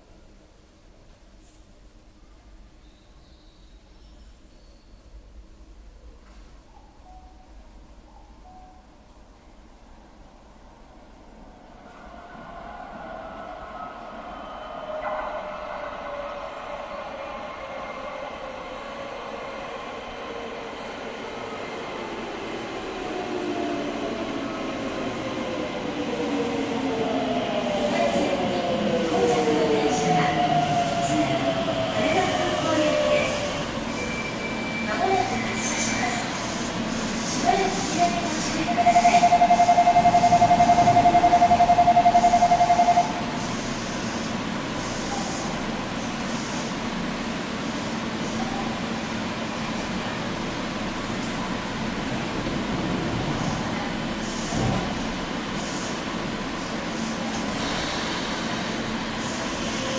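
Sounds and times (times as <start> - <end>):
standing train hum: 4.0 - 59.9
electric train inverter whine: 36.7 - 44.8.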